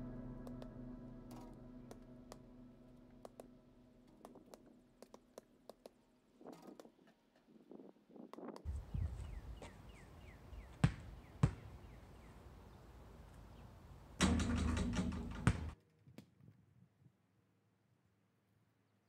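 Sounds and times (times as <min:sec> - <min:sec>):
steady low rumble: 0:00.0 - 0:05.6
basketball bouncing on pavement: 0:10.6 - 0:12.0, 0:14.2 - 0:15.8
clattering quick knocks: 0:14.2 - 0:15.8.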